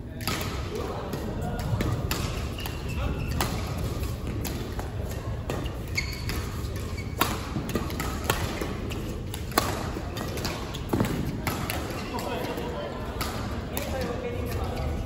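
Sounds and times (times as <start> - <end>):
badminton racket hitting shuttlecock: 0.2 - 14.8
shoes squeaking on court floor: 2.3 - 12.7.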